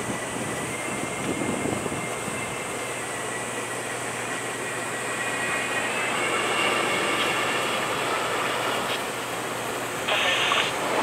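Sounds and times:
jet engines running: 0:00.0 - 0:11.0
hissing burst: 0:10.0 - 0:11.0.

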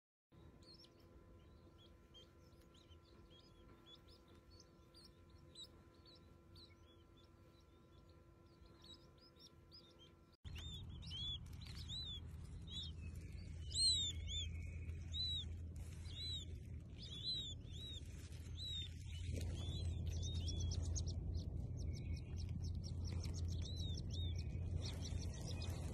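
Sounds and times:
baby chicks peeping: 0:00.4 - 0:25.9
low rumble: 0:10.4 - 0:25.9.

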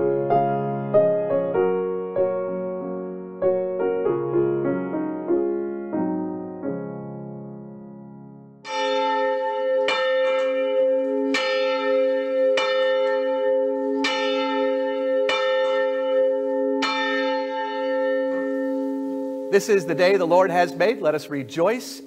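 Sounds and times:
held piano chord: 0:00.0 - 0:22.0
church bell tolling: 0:08.6 - 0:22.0.

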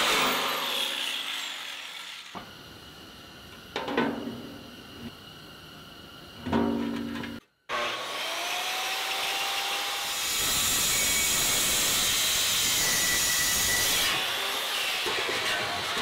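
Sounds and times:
power tool motor whining: 0:07.7 - 0:16.0.

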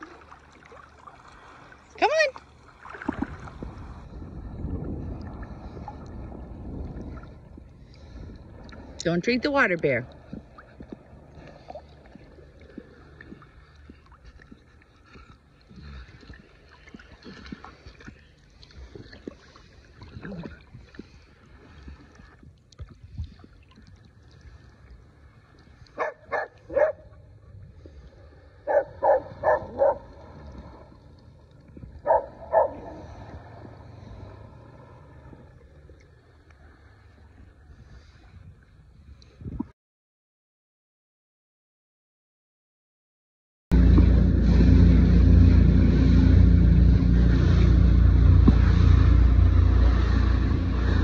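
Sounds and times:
water sloshing and lapping: 0:00.0 - 0:39.7
dog barking: 0:26.0 - 0:27.0, 0:28.6 - 0:30.0, 0:32.0 - 0:33.0.

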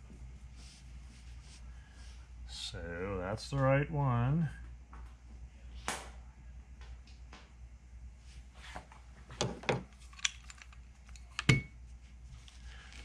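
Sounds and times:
metal parts clicking and tapping: 0:09.6 - 0:11.6.

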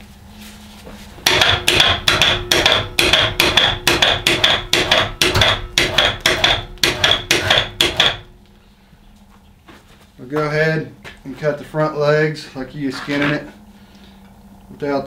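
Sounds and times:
rapid knocking: 0:01.3 - 0:08.3.

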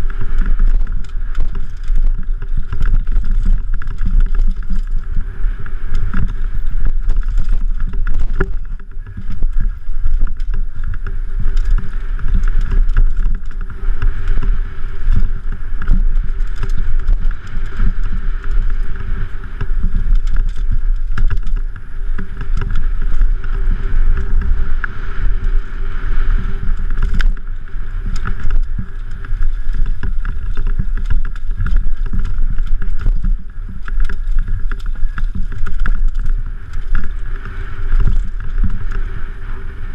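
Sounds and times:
bike rattling and knocking: 0:00.0 - 0:39.9
wind rumble on microphone: 0:00.0 - 0:39.9.

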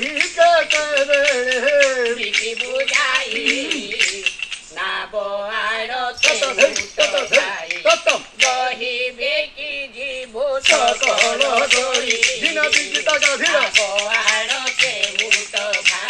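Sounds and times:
wooden clappers clacking: 0:00.0 - 0:04.8, 0:06.2 - 0:08.8, 0:10.6 - 0:16.0
man singing in a wavering voice: 0:00.0 - 0:05.0, 0:06.2 - 0:16.0.

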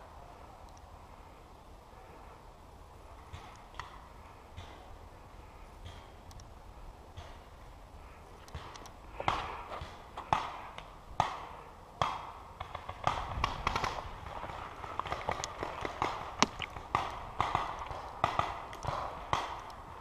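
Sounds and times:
paintball markers popping: 0:15.0 - 0:17.9.

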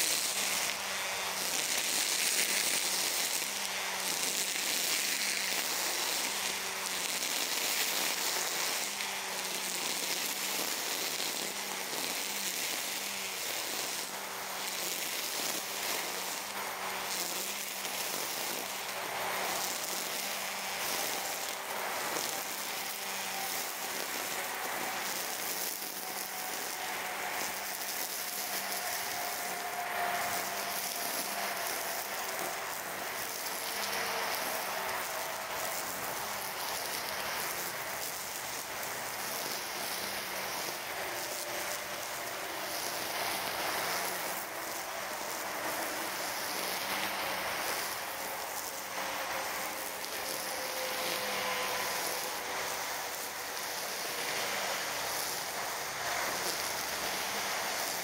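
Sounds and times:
brush cutter hissing through grass: 0:00.0 - 0:58.0
electric motor hum: 0:00.0 - 0:58.0.

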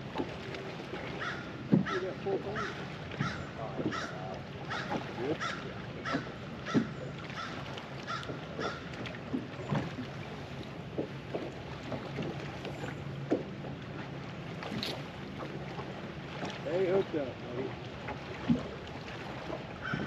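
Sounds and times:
water splashing and knocking: 0:00.0 - 0:20.0
crow cawing: 0:02.6 - 0:08.8.

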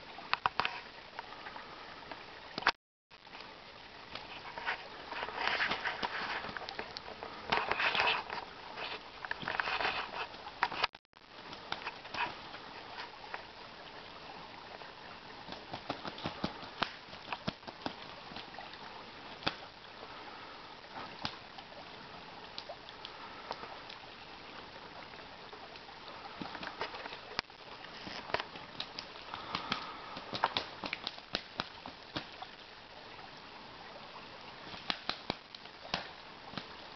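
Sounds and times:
creek water rushing: 0:00.0 - 0:36.9
ducks splashing in water: 0:14.7 - 0:21.5, 0:26.1 - 0:27.4, 0:28.1 - 0:32.6, 0:34.6 - 0:36.9
wings flapping: 0:15.5 - 0:18.5.

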